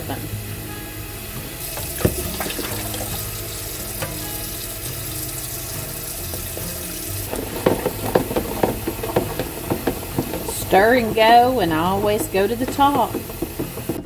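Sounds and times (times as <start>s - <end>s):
liquid pouring into pitcher: 1.6s - 11.1s
faucet water splashing into pan: 1.6s - 13.8s.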